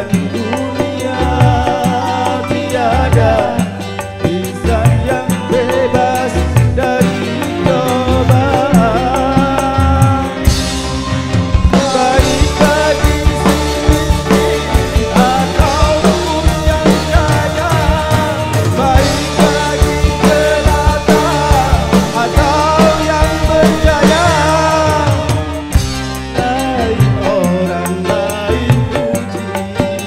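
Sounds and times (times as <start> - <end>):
bass guitar: 0.0 - 30.0
drum kit: 0.0 - 30.0
electronic keyboard melody: 0.0 - 30.0
man singing: 0.0 - 30.0.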